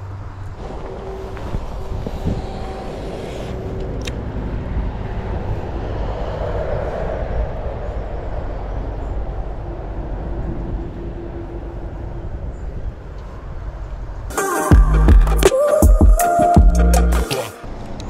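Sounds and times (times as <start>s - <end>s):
wind buffeting microphone: 0.5s - 14.3s.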